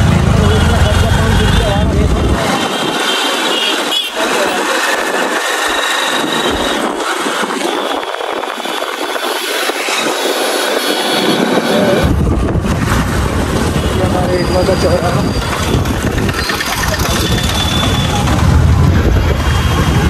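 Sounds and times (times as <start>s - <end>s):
street traffic: 0.0s - 20.0s
voices: 14.0s - 20.0s
motorcycle engine running: 15.6s - 20.0s.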